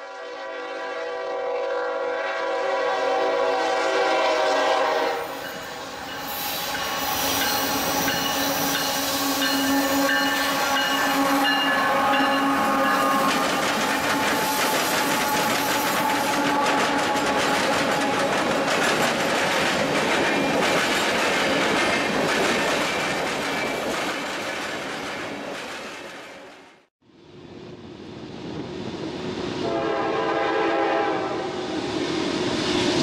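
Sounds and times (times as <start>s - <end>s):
train air horn blast: 0.0s - 5.6s, 8.5s - 18.2s, 29.6s - 31.8s
diesel locomotive engine drone: 0.0s - 22.4s, 27.0s - 33.0s
train wheels clattering over rail joints: 6.7s - 26.7s.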